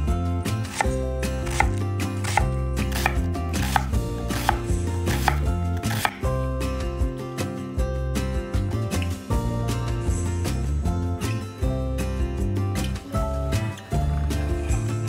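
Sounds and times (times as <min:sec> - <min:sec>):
background music: 0:00.0 - 0:15.0
knife chopping on cutting board: 0:00.7 - 0:06.3.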